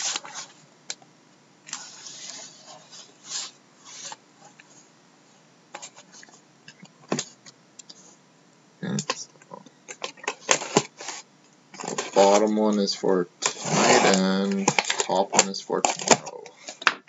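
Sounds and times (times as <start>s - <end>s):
cardboard and plastic wrap scraping: 10.3s - 12.5s, 13.4s - 16.8s.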